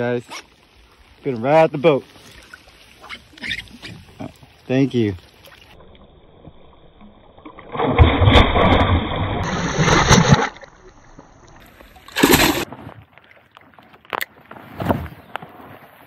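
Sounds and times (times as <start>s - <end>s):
fish splashing at water surface: 7.7s - 10.8s, 12.0s - 12.7s.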